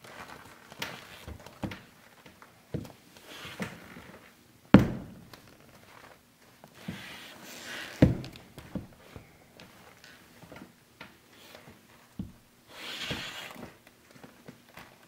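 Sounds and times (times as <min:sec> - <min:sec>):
boots thudding on wooden floor: 0:04.7 - 0:05.2, 0:08.0 - 0:09.3, 0:12.2 - 0:12.5.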